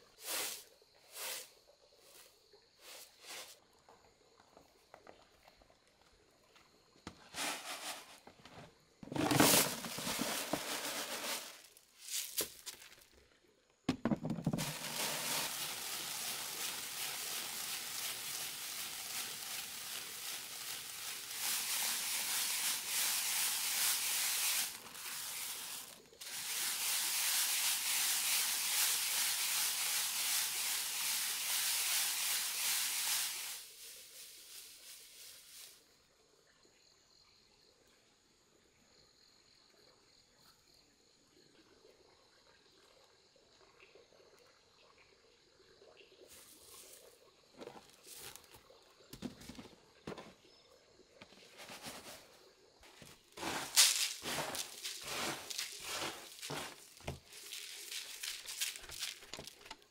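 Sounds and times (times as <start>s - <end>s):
grains scraped across bamboo tray: 7.3s - 12.5s, 14.2s - 35.8s, 51.5s - 52.3s, 52.9s - 59.8s.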